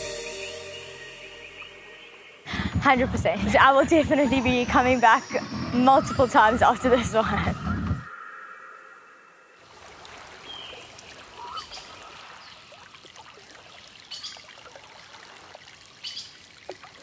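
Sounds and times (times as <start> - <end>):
water dripping: 9.6 - 17.0
water trickling in a stream: 9.6 - 17.0.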